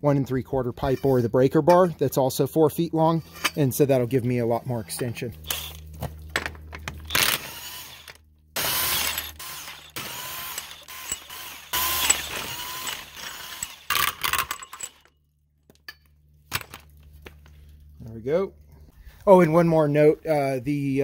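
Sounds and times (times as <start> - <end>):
impact wrench bursts: 7.0 - 15.1.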